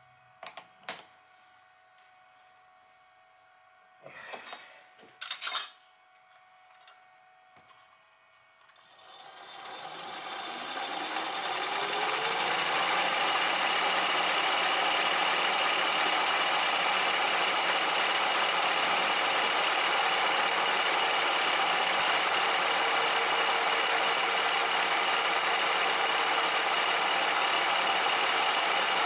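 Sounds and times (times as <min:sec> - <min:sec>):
electric motor with mechanical rattle: 0:08.6 - 0:29.0.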